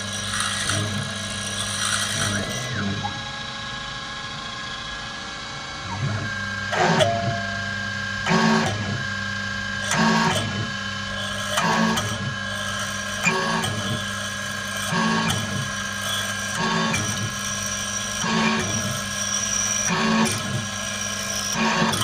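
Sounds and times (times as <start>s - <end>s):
drill rasping into metal: 0.0s - 3.0s, 9.8s - 22.0s
mill spindle whining: 0.0s - 22.0s.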